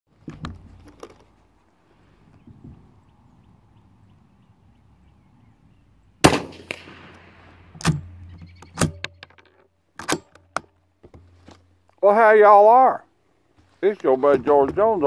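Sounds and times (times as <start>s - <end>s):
rifle shot with echo: 6.2s - 8.2s
sharp rifle bolt clacks: 7.8s - 10.7s.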